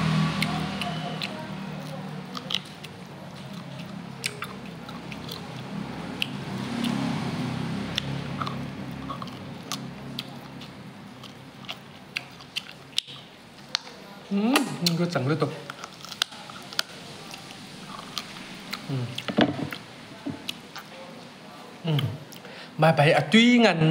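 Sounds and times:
person chewing close to microphone: 0.3 - 7.1, 7.9 - 13.9, 15.6 - 21.0
wet mouth clicks: 0.4 - 7.1, 7.9 - 13.9.

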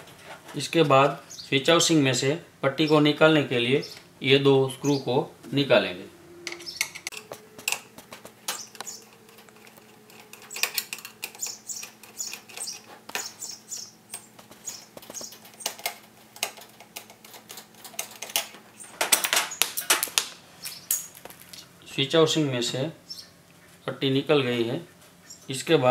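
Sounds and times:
metal scraping on metal: 6.0 - 13.4
screwdriver clicking on metal: 6.5 - 13.3.

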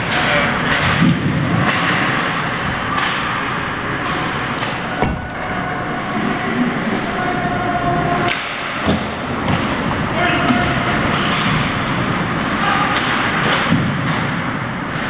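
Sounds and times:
steady noisy din: 0.0 - 15.0
sharp crack of a puck: 12.8 - 14.3.

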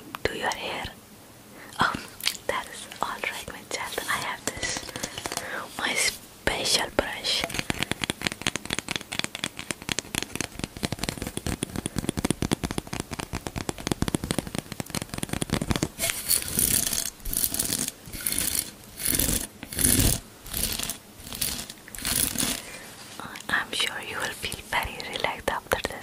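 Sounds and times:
hairbrush bristles flicked clicking: 7.4 - 17.6.

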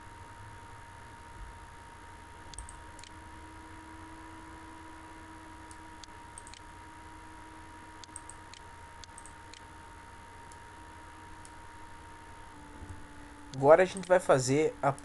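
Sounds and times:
faint electrical hum: 0.0 - 15.0
computer mouse clicks: 2.5 - 3.2, 5.7 - 6.7, 8.0 - 9.7.

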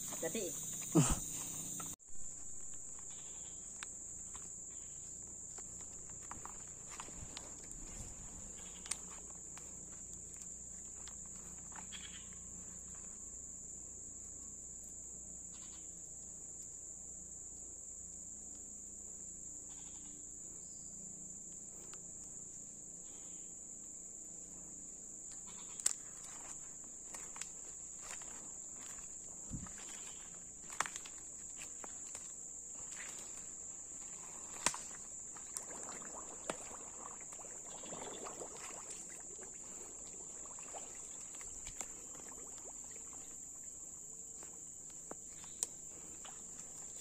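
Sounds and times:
insects shrilling: 0.0 - 5.1, 6.2 - 9.7, 11.3 - 12.3, 27.1 - 43.8
sharp snaps and rustles: 5.2 - 12.2, 25.3 - 35.7.

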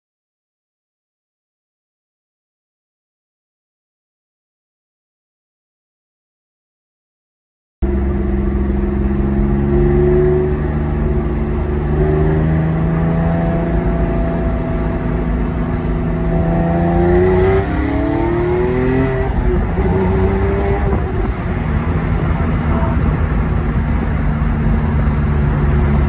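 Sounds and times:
car engine accelerating: 7.8 - 26.0.

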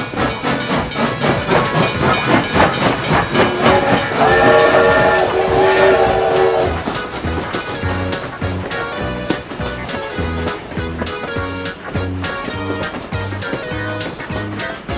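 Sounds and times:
toy train chugging sound effect: 0.0 - 14.9
electronic steam whistle: 0.9 - 8.0.

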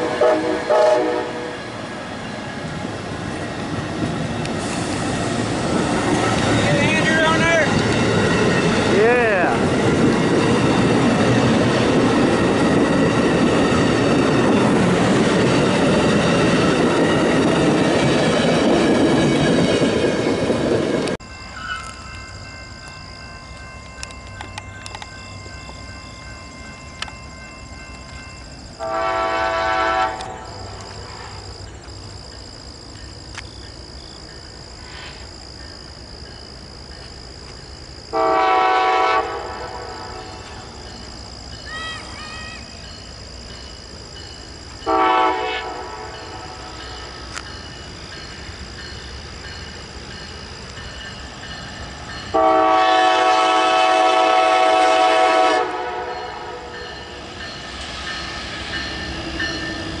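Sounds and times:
locomotive air horn blasts: 0.0 - 1.6, 28.8 - 30.4, 38.1 - 40.0, 44.9 - 46.0, 52.3 - 56.7
train running noise: 0.0 - 60.0.

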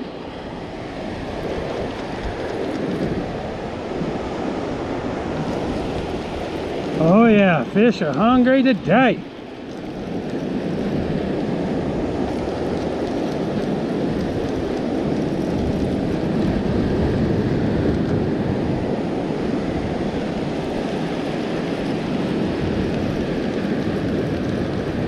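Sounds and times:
surf washing up beach: 0.0 - 25.0
wind buffeting microphone: 0.0 - 25.0.

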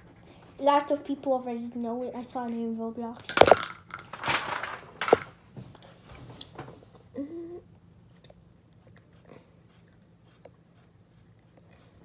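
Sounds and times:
pencil scratching on paper: 0.0 - 2.3.

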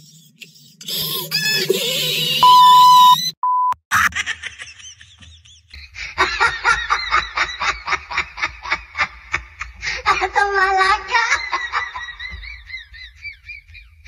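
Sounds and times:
high-pitched voice-like chatter: 0.0 - 2.5
censor bleeps: 2.4 - 3.8.

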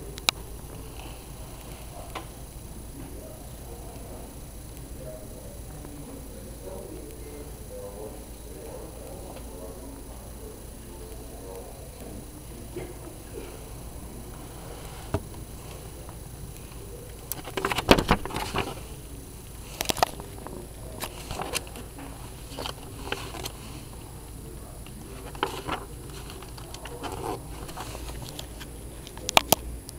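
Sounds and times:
background hiss: 0.0 - 29.9
paper pages rustling: 17.3 - 19.0, 19.8 - 24.0, 25.0 - 29.3.

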